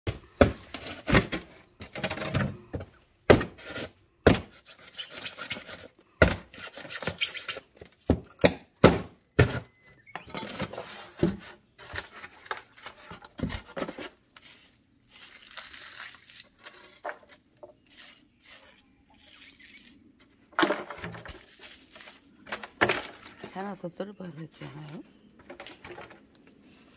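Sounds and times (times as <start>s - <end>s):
metal tool crunching foam: 11.0s - 20.2s.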